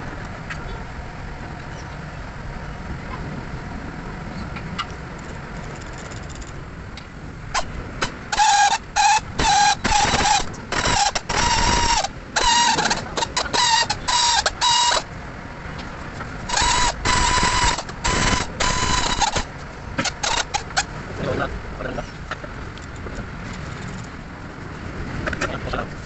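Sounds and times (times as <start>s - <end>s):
power ratchet whirring: 7.6s - 15.1s, 16.5s - 20.8s.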